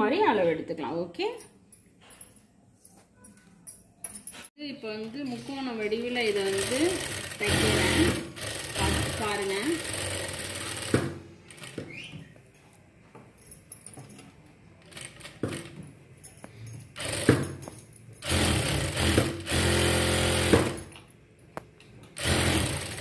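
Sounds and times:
sewing machine stitching: 6.2 - 11.8, 18.2 - 20.9, 22.2 - 23.0.

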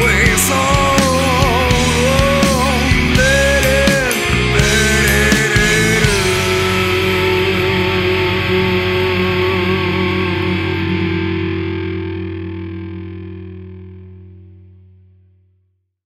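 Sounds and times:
drums: 0.0 - 12.8
distorted electric guitar chord: 0.0 - 15.1
low sustained note: 1.6 - 14.7.

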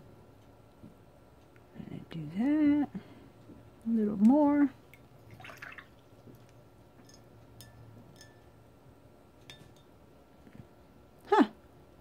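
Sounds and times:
paintbrush clinking on glass jar: 7.0 - 8.5.

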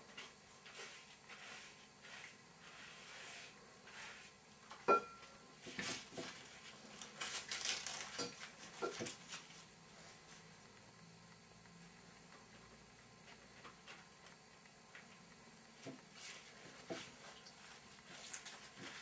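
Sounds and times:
brush swishing in bowl: 0.1 - 4.5, 16.1 - 19.0
paintbrush scratching paste: 0.6 - 4.4
brush clinking on bowl: 4.8 - 5.3.

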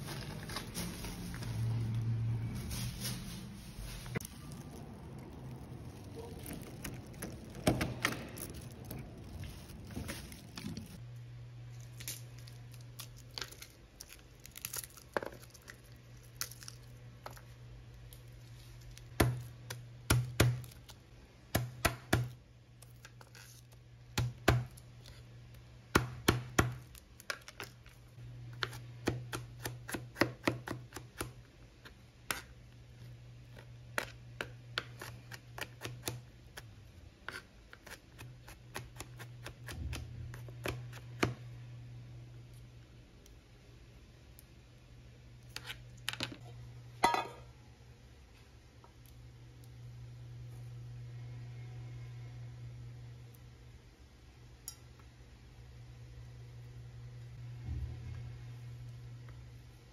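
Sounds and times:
low hum: 55.7 - 59.8.

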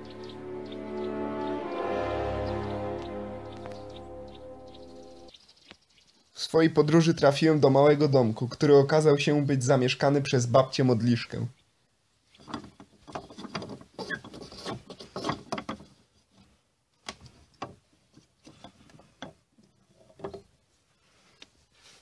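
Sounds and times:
handling noise on wooden wall: 12.4 - 20.6.

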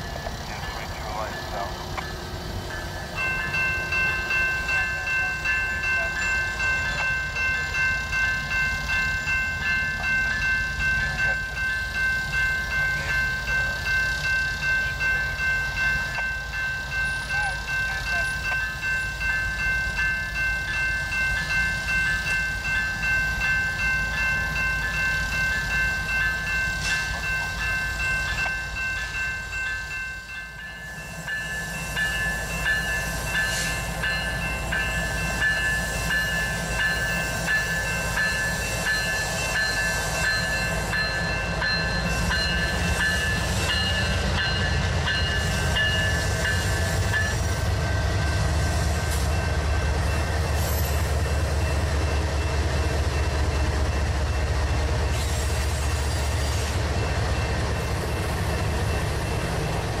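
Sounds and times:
freight cars rumbling: 0.0 - 30.9
diesel locomotive engine rumble: 0.0 - 60.0
railroad crossing bell: 0.0 - 60.0.

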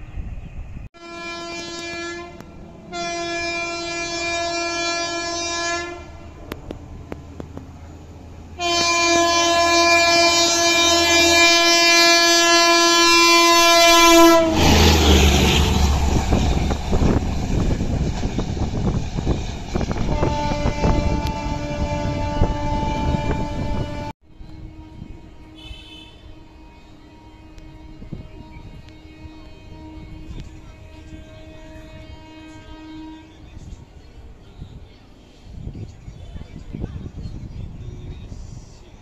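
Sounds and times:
train rumbling on track: 0.0 - 39.0
train horn blasts: 1.0 - 6.5, 8.6 - 33.8.

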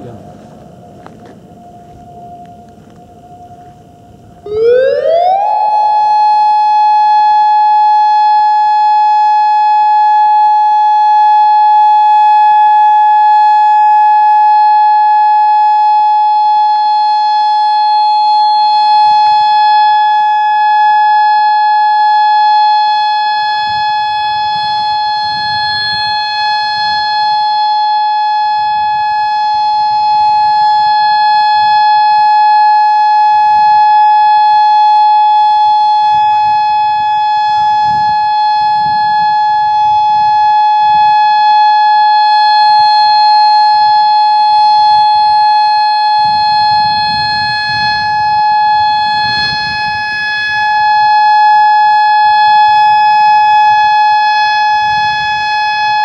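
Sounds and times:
electronic siren steady tone: 0.0 - 56.0.

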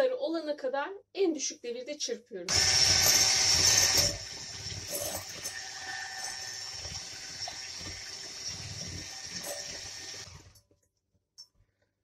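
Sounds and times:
electric hand mixer whining: 2.5 - 10.6.

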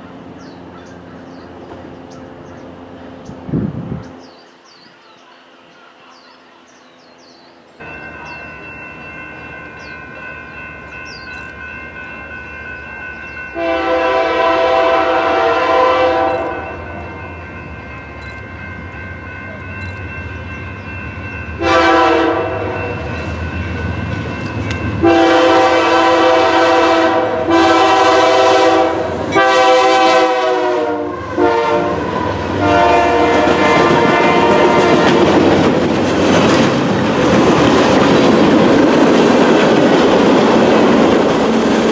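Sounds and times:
locomotive air horn blasts: 13.5 - 17.1, 21.6 - 23.1, 25.0 - 35.4
train wheels clattering: 22.8 - 25.2, 32.8 - 41.9.

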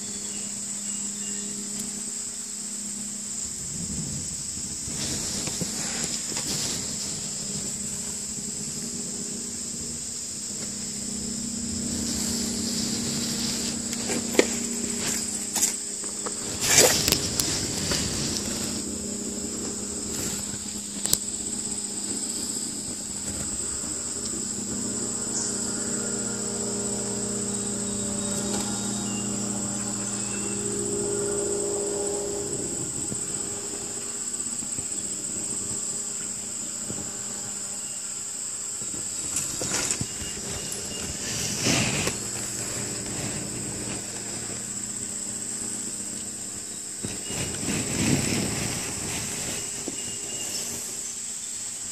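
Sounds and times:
insects droning: 0.0 - 51.9
low steady hum: 0.0 - 51.9.

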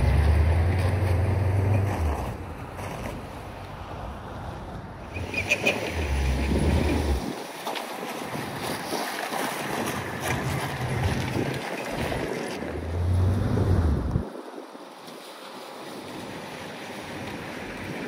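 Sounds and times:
diesel truck engine revving: 0.0 - 3.2, 5.1 - 7.2, 12.6 - 14.2
wind rushing across microphone: 1.3 - 7.5, 9.6 - 15.0.

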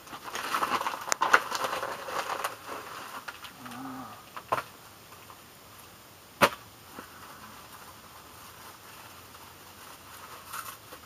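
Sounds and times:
package rustling: 0.0 - 3.9.

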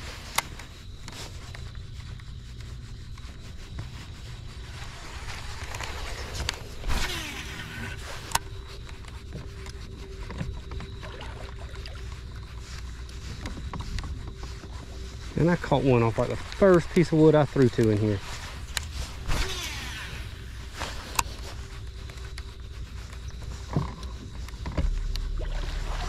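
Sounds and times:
faint steady whine: 0.0 - 26.0
electric trolling motor humming: 4.5 - 15.5, 18.5 - 26.0.

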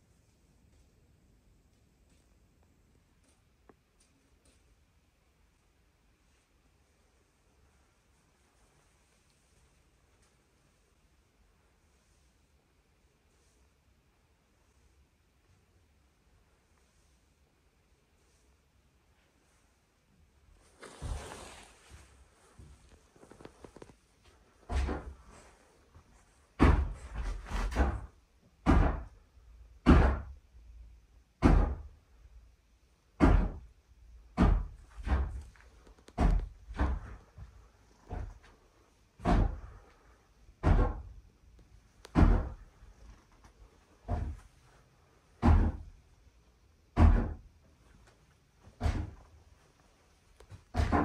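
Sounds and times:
floorboard creaking: 20.6 - 25.6
heavy footsteps on floorboards: 20.8 - 29.1, 34.3 - 41.2, 42.0 - 44.7, 45.4 - 46.0, 48.6 - 51.0.

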